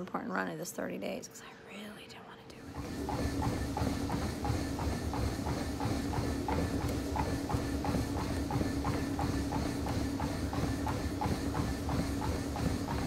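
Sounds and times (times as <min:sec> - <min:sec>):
treadmill motor hum: 0:02.5 - 0:13.0
footfalls on treadmill belt: 0:02.8 - 0:13.0.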